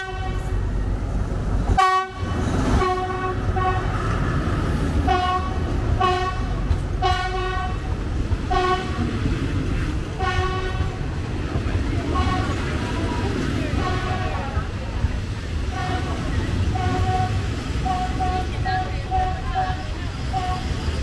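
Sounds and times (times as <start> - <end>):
train horn short toots: 0.0 - 0.6, 1.8 - 4.0, 5.1 - 7.9, 8.5 - 9.0, 10.2 - 11.0, 16.7 - 20.7
train rumbling on rails: 0.0 - 21.0.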